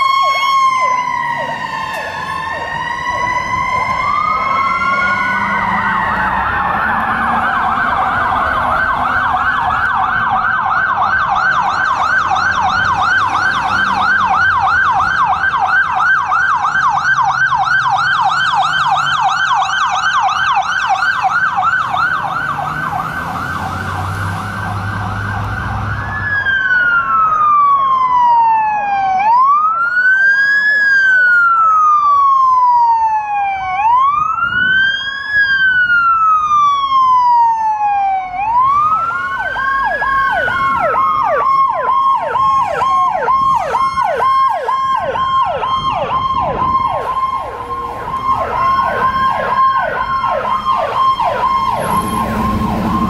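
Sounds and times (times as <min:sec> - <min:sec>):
fire engine siren: 0:00.0 - 0:53.0
second siren yelping: 0:00.0 - 0:53.0.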